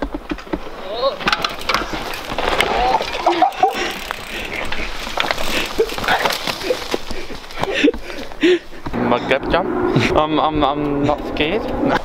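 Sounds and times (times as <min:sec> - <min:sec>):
dirt and twigs crackling: 0:00.0 - 0:09.0
person breathing: 0:03.8 - 0:05.8, 0:07.0 - 0:09.0.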